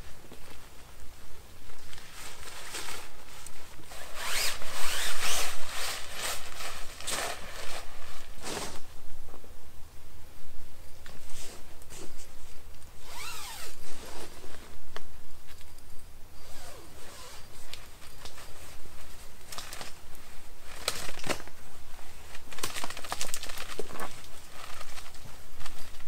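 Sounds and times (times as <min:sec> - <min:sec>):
nylon fabric rustling: 0:00.0 - 0:09.0, 0:11.2 - 0:14.8, 0:16.4 - 0:26.0
zipper being pulled: 0:03.8 - 0:08.8, 0:13.0 - 0:14.5, 0:16.4 - 0:17.7.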